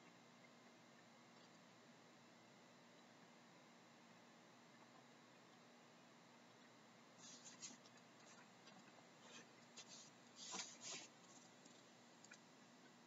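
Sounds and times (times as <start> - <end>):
faint scratchy rustles: 7.2 - 8.5, 9.2 - 11.8.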